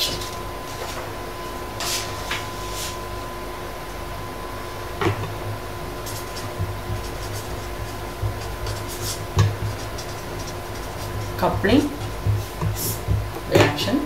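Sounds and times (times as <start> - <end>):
faint steady hum: 0.0 - 14.0
pen scratching on paper: 6.0 - 13.2.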